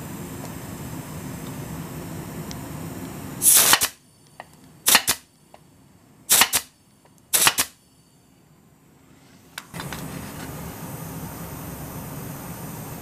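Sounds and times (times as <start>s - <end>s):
pin nailer firing: 3.4s - 4.0s, 4.8s - 5.3s, 6.3s - 6.7s, 7.3s - 7.8s.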